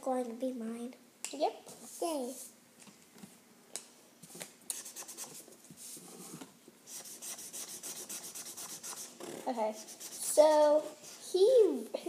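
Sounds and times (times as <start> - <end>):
marker scribbling on paper: 4.7 - 5.5, 6.9 - 11.3.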